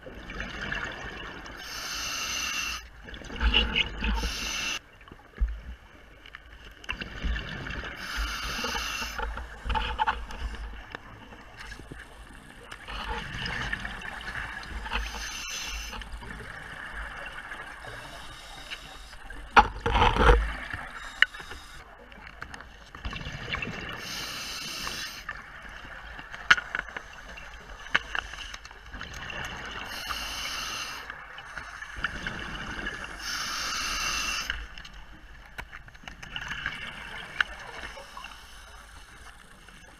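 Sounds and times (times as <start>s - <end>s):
regulator breathing hiss: 1.6s - 2.9s, 4.2s - 4.8s, 8.0s - 9.3s, 15.0s - 16.1s, 17.8s - 19.4s, 20.9s - 21.8s, 24.0s - 25.3s, 29.9s - 32.0s, 33.1s - 34.7s, 37.8s - 39.4s.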